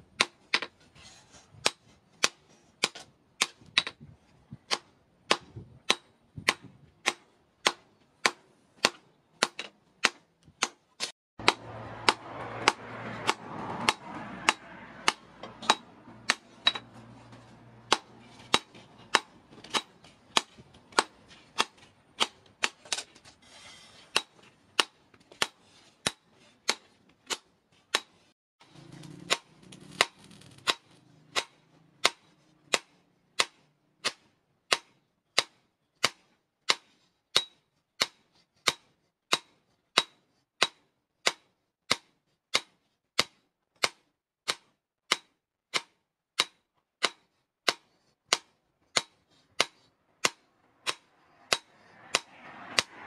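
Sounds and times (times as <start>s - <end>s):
hammer striking hot metal on anvil: 11.4s - 16.9s, 30.7s - 43.3s, 44.5s - 52.9s.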